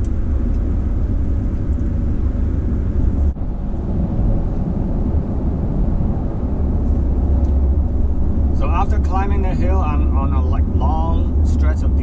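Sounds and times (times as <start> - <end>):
engine and road noise in cab: 0.0 - 12.0.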